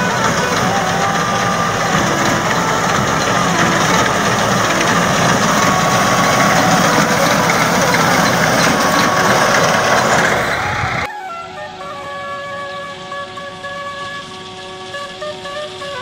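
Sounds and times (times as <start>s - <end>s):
music with held tones: 0.0s - 10.0s, 11.0s - 16.0s
reaper cutting wheat: 0.0s - 10.8s
tractor engine running: 0.0s - 11.1s, 11.8s - 16.0s.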